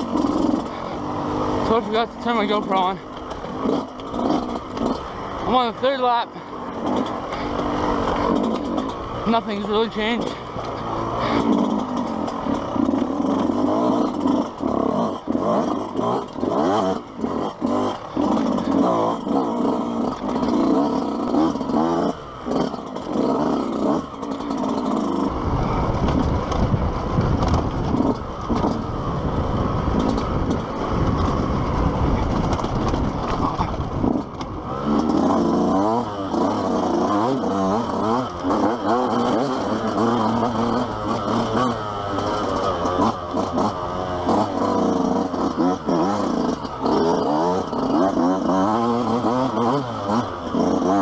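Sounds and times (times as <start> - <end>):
dirt bike engine revving: 0.0 - 51.0.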